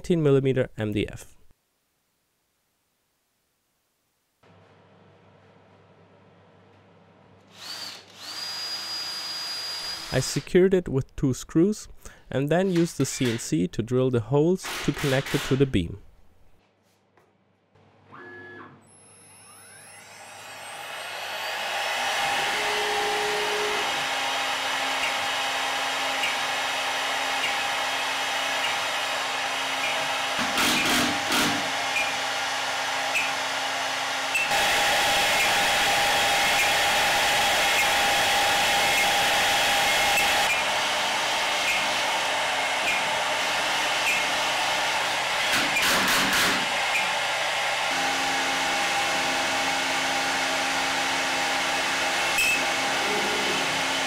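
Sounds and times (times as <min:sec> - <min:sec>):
router spindle whine: 0:07.5 - 0:10.1, 0:18.1 - 0:30.4, 0:31.3 - 0:45.8
router cutting into wood board: 0:07.5 - 0:10.2, 0:19.2 - 0:54.0.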